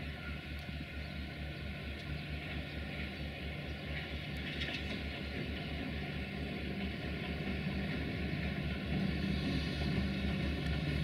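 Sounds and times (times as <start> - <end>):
locomotive engine throbbing: 0.0 - 11.0.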